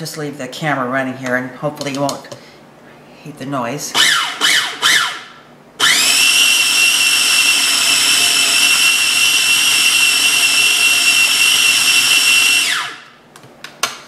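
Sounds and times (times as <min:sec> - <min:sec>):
food processor motor whine: 0:04.0 - 0:13.2.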